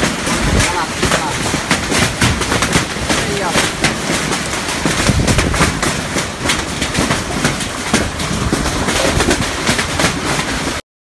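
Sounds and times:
hail clattering: 0.0s - 10.8s.

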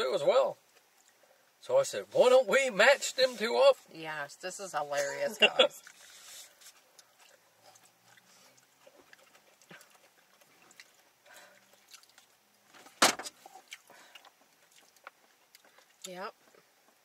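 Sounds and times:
people chewing: 5.6s - 12.7s, 13.3s - 17.0s.

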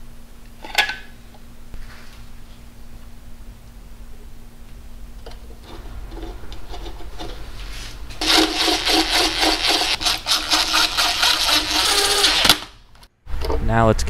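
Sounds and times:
cordless driver buzzing: 8.2s - 13.0s.

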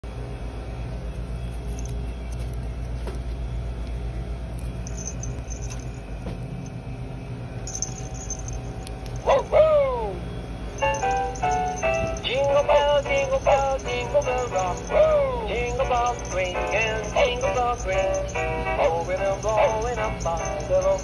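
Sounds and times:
low background hum: 0.0s - 21.0s
toy playing falling tones: 10.8s - 21.0s.

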